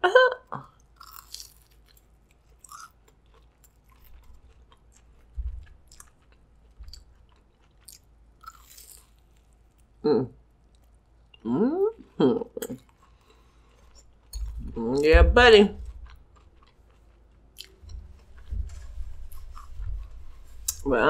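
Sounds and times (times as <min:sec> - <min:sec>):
chewing mouth sounds: 0:00.7 - 0:09.9, 0:15.8 - 0:18.5
dull low thumps: 0:05.3 - 0:06.0, 0:14.4 - 0:16.6, 0:17.7 - 0:21.0.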